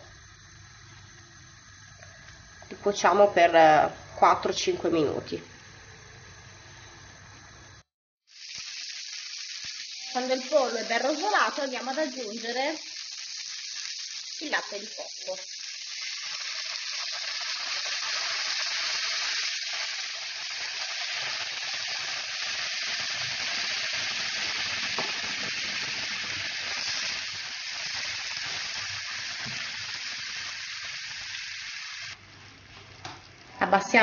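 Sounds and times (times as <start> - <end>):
liquid sizzling in a frying pan: 8.3 - 34.0.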